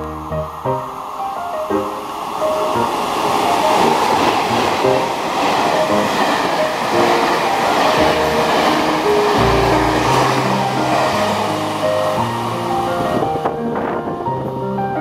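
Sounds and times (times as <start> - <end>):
train wheels on rails: 0.0 - 15.0.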